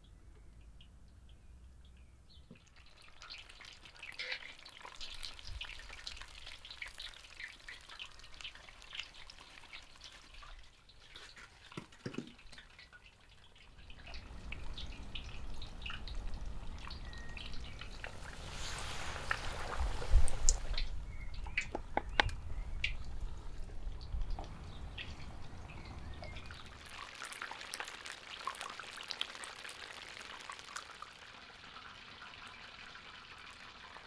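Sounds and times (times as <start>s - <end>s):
chicken deep-frying in oil: 0.0s - 34.0s.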